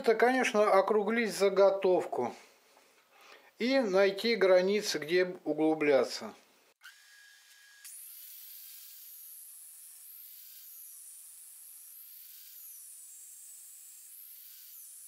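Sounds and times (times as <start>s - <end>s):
angle grinder cutting wood: 6.8s - 15.0s.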